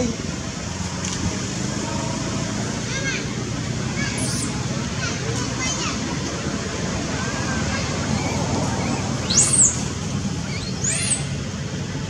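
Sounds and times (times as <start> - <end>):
background murmur: 1.4 - 12.0.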